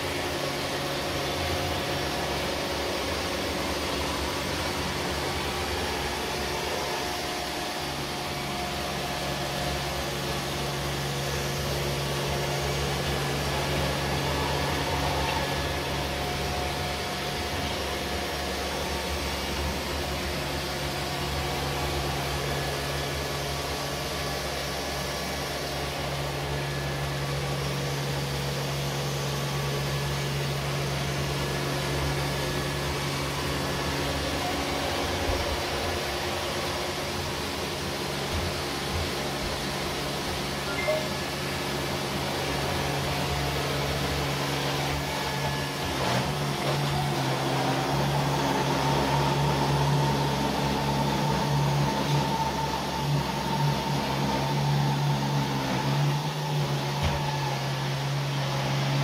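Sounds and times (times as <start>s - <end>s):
robot vacuums whirring: 0.1s - 59.0s.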